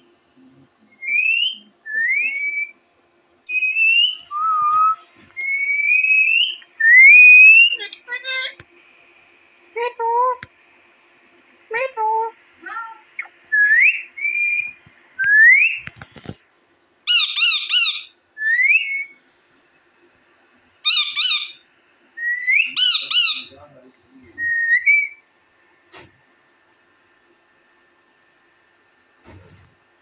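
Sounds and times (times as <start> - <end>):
parakeets whistling: 0.9 - 2.8, 3.5 - 8.1, 13.2 - 15.8, 17.1 - 19.2, 20.8 - 21.6, 22.2 - 23.6, 24.4 - 25.2
parakeets screeching: 1.0 - 2.7, 5.5 - 8.0, 17.1 - 19.1, 20.8 - 21.6, 22.3 - 23.6.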